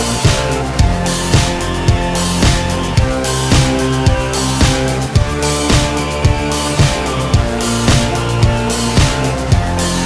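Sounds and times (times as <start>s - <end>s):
rock music with electric guitar: 0.0s - 10.0s
steady drum beat: 0.0s - 10.0s.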